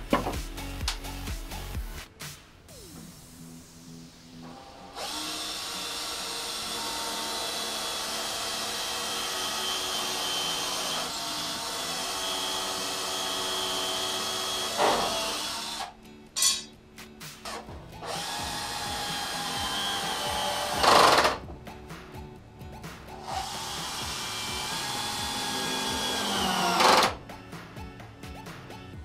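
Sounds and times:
power drill running: 4.6 - 15.9, 18.0 - 21.4, 23.2 - 27.2.

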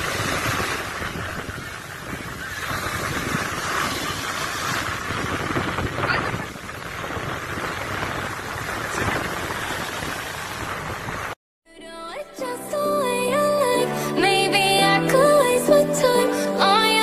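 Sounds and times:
sea waves washing on beach: 0.0 - 11.4
wind buffeting microphone: 0.0 - 11.4.

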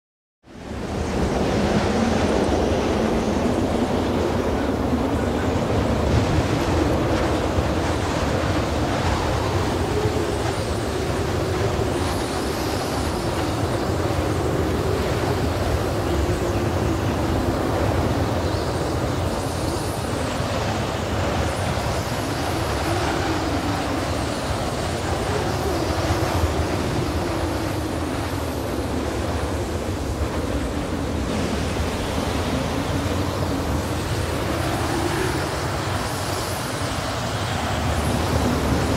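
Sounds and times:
steady rushing noise: 0.5 - 38.9.

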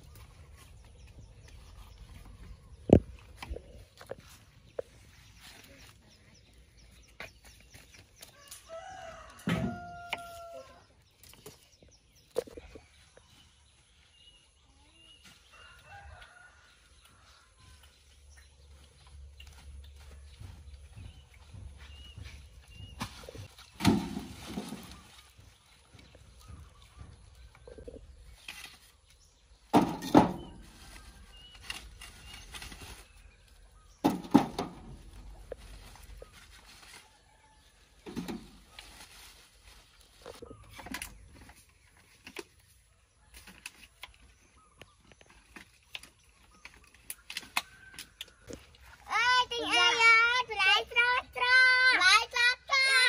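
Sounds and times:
faint chicken calls: 8.2 - 11.0, 14.6 - 18.1
rooster crowing: 8.5 - 10.8.

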